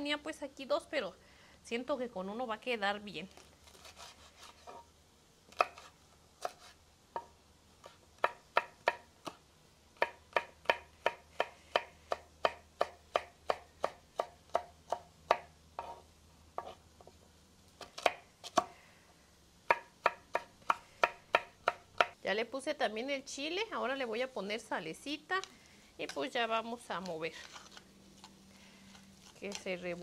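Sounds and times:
knife chopping on wooden board: 5.5 - 9.4, 10.0 - 16.0, 17.8 - 18.7, 19.7 - 22.2.

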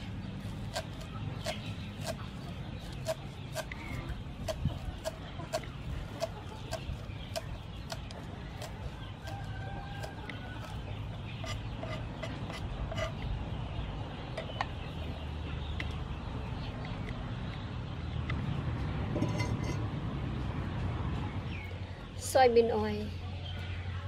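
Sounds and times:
knife chopping on wooden block: 0.7 - 2.2.

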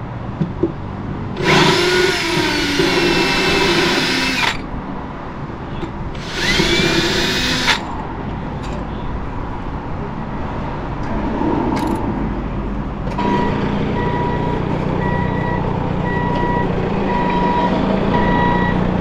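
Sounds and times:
reversing alarm beeping: 13.2 - 18.9.

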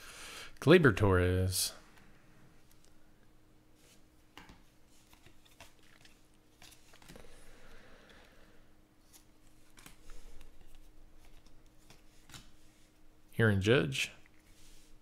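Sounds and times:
faint steady hum: 0.0 - 15.0
cards flipping and sliding: 3.8 - 7.4, 9.0 - 13.0.

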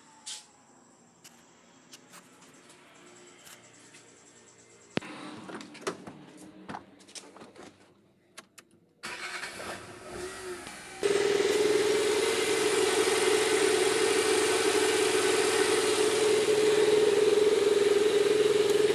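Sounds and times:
car engine starting and idling: 9.0 - 18.9.

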